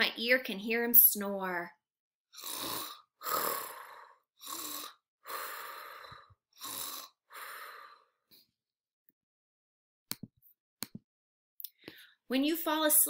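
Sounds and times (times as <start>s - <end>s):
woman mimicking snoring: 2.4s - 8.1s.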